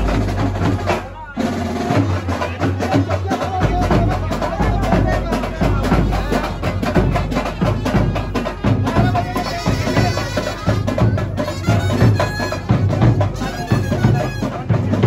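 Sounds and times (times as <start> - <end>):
brass band playing dance music: 0.0 - 15.0
loud drum beat: 0.0 - 15.0
saxophone melody: 7.6 - 14.7.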